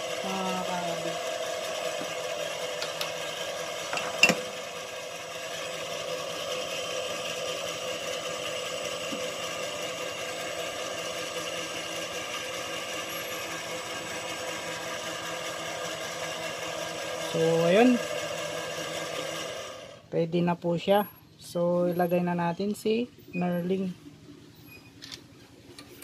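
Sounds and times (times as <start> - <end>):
metal lathe whining: 0.0 - 20.1.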